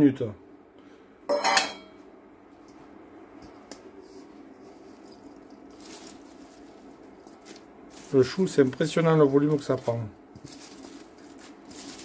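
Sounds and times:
cabbage leaves rustling: 4.7 - 12.0.

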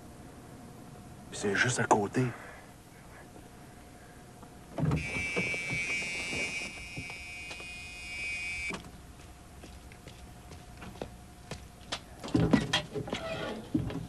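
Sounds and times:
car warning buzzer: 4.8 - 8.8.

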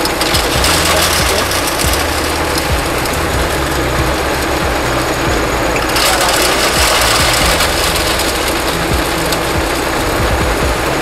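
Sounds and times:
hammer mill running: 0.0 - 11.0.

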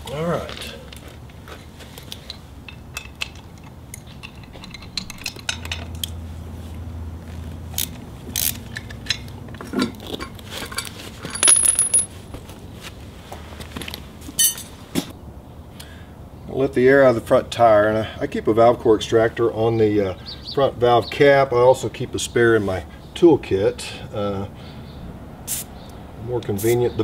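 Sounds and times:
metallic clinks of wrench and bolts: 2.7 - 6.1, 10.2 - 12.1.

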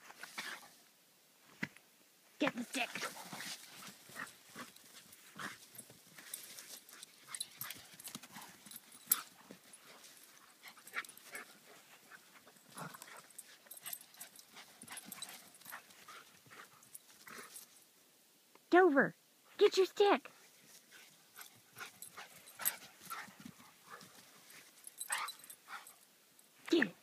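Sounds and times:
dog paws thudding on grass: 2.4 - 17.5.

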